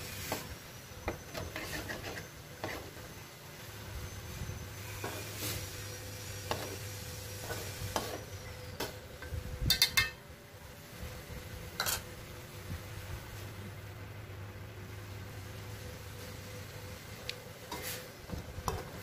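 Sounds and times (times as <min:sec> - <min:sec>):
faint sizzle: 0:00.0 - 0:19.0
metal spatula scraping wok: 0:01.2 - 0:03.1, 0:04.8 - 0:08.9, 0:11.8 - 0:12.1, 0:17.6 - 0:19.0
spatula clinking against wok: 0:09.7 - 0:10.2.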